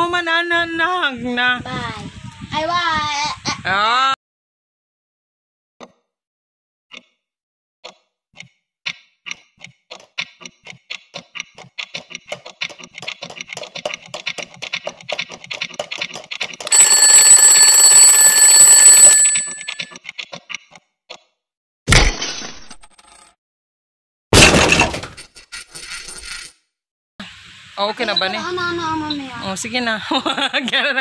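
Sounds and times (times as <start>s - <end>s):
alarm clock bell ringing: 16.7s - 19.9s
alarm clock ticking: 16.7s - 19.9s.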